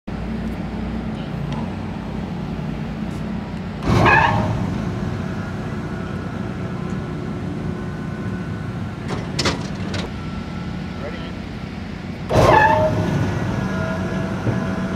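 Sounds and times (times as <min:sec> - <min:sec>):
drive belts squeaking: 0:03.8 - 0:05.0, 0:12.3 - 0:14.9.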